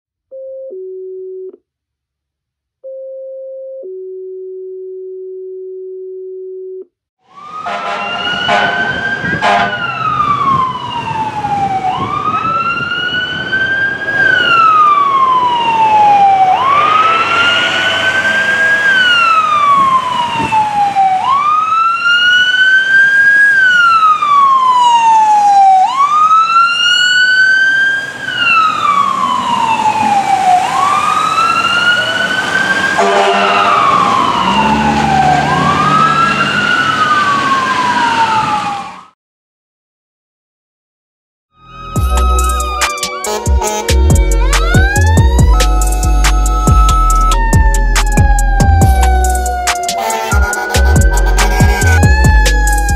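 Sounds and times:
fire engine siren wailing: 7.2s - 39.2s, 41.6s - 52.9s
air horn blasts: 7.6s - 9.9s, 16.6s - 19.8s, 33.0s - 34.6s, 43.2s - 44.5s, 49.4s - 52.9s.

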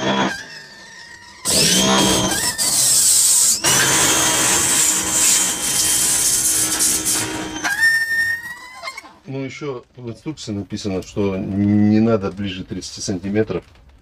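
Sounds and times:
pressure washer running: 1.4s - 7.6s.

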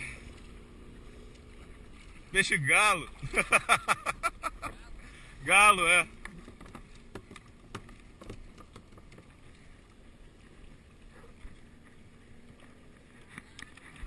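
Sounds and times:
water lapping against kayak: 0.0s - 14.0s
gear knocking on boat: 6.4s - 9.4s.

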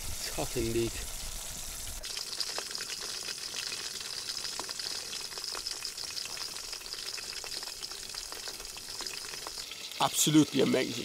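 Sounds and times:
oil sizzling in a frying pan: 0.0s - 11.0s.

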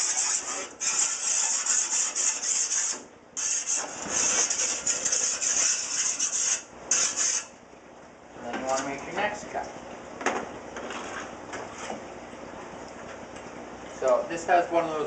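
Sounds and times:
file rasping on glass edge: 0.0s - 7.5s.

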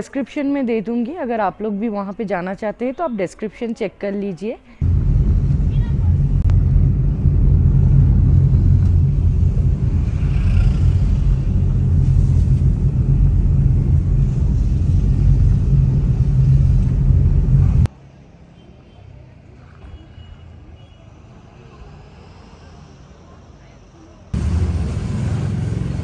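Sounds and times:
car engine and tyre noise: 4.8s - 18.0s, 20.9s - 26.0s.

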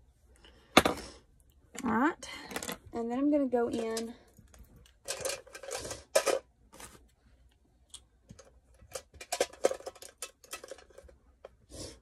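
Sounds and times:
makeup brushes clicking and rustling: 3.7s - 7.0s, 8.0s - 11.5s.

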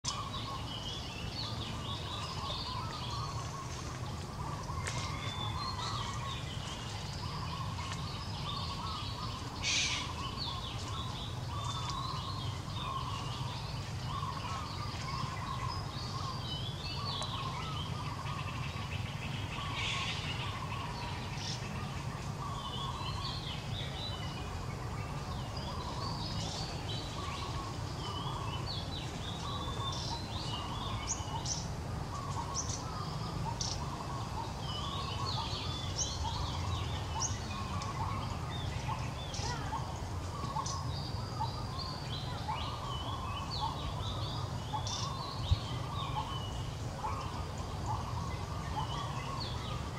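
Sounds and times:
birds chirping and calling: 0.0s - 49.9s.

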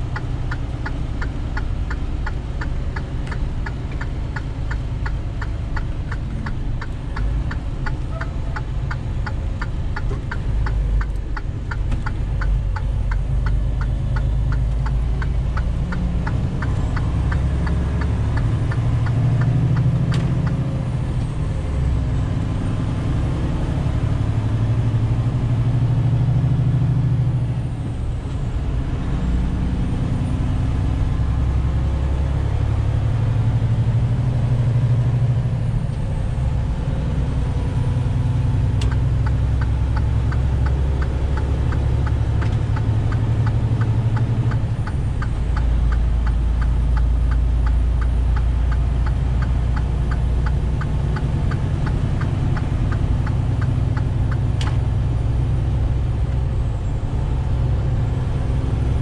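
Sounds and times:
turn signal ticking: 0.0s - 23.9s, 36.8s - 59.0s
truck diesel engine droning: 0.0s - 59.0s.

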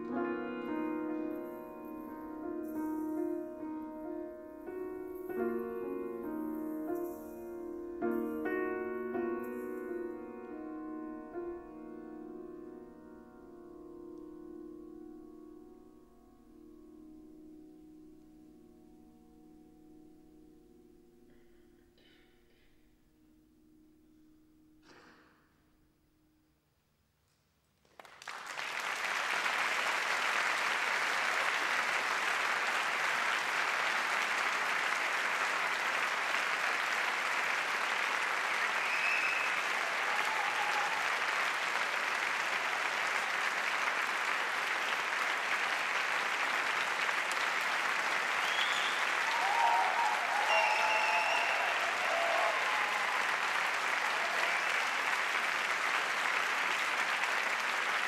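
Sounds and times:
audience applauding: 27.8s - 58.0s
short cheers: 38.6s - 41.6s, 48.4s - 55.2s.

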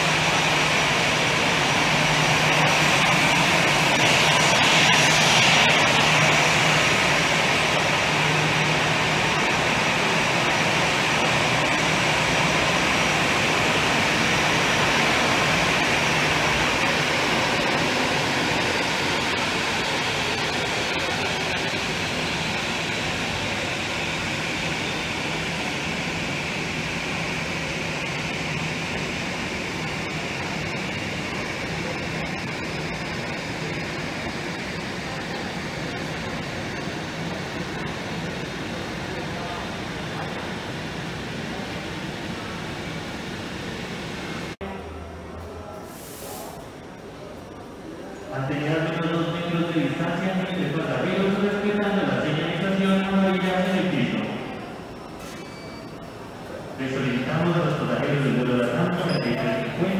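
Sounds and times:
jet engines roaring: 0.0s - 45.0s.

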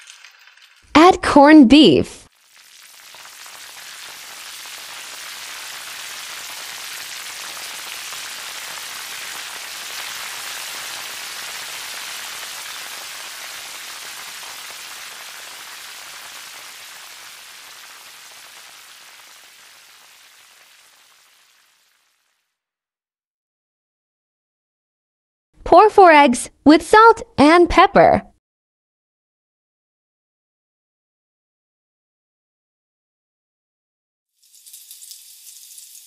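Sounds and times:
food sizzling in oil: 0.0s - 0.9s, 2.2s - 22.4s, 34.3s - 36.0s.

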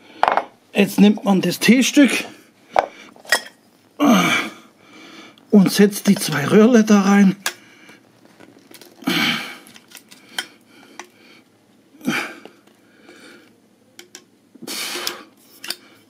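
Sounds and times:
rustles and light clicks: 7.9s - 9.0s.

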